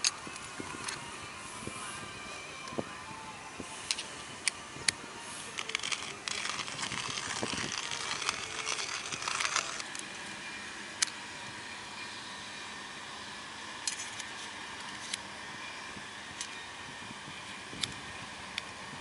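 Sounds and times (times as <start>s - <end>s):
small metal parts clicking: 5.6s - 10.0s.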